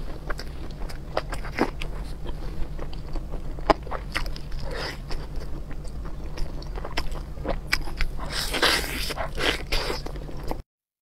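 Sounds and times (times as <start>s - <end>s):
low hum: 0.0s - 10.6s
person eating seafood: 0.3s - 10.6s.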